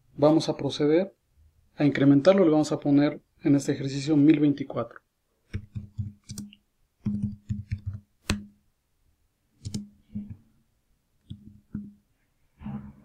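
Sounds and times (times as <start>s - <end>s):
keyboard typing: 5.5s - 8.4s, 9.6s - 10.4s.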